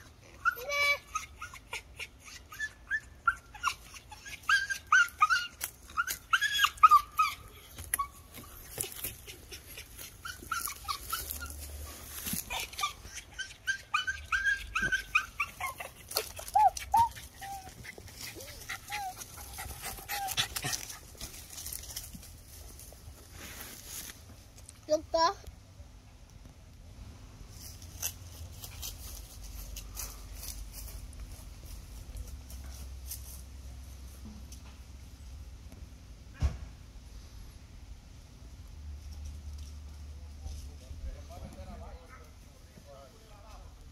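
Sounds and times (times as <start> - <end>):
dog whimpering: 0.2 - 20.8.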